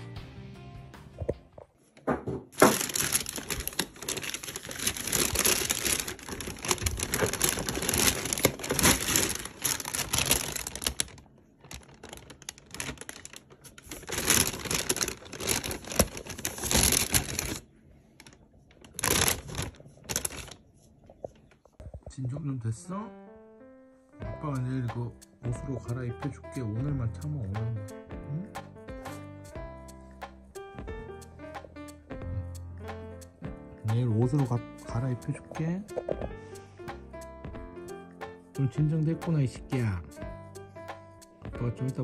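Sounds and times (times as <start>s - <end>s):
paper bag and cardboard rustling: 2.5s - 20.7s.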